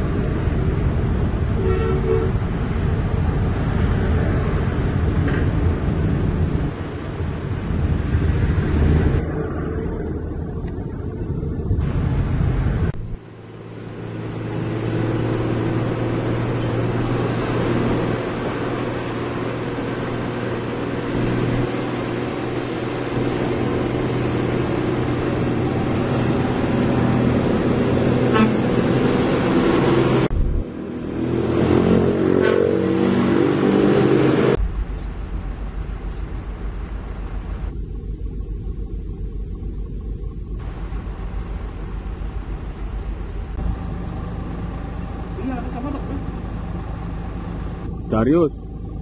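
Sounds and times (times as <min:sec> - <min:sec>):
motorbikes passing: 0:00.0 - 0:34.6, 0:40.6 - 0:49.0
cars passing: 0:00.0 - 0:38.0, 0:40.6 - 0:49.0
truck diesel engine running: 0:34.6 - 0:49.0.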